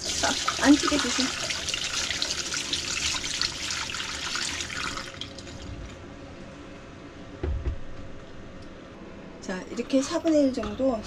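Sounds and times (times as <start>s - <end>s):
short low thump: 7.4s - 8.1s.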